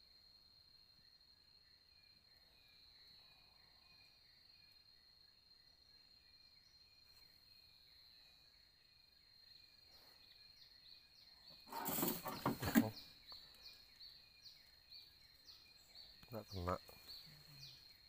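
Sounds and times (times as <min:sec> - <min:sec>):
high insect drone: 0:00.0 - 0:18.0.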